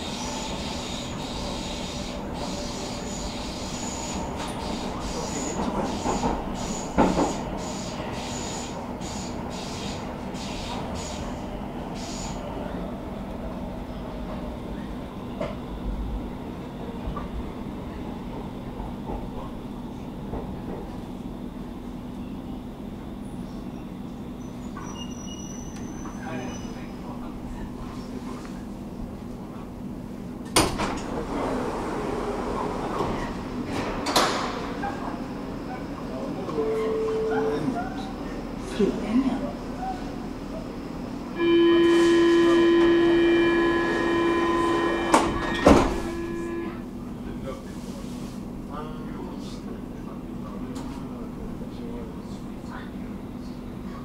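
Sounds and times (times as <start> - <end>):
metro train wheels rumbling: 0.0 - 54.0
train doors knocking shut: 4.2 - 8.4, 30.4 - 31.2, 32.6 - 35.0, 41.4 - 46.8
train door warning buzz: 41.3 - 46.9.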